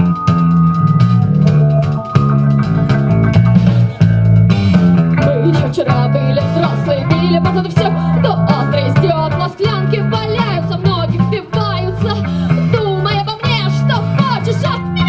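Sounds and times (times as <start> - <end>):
live rock band playing: 0.0 - 15.0
woman singing: 5.2 - 15.0.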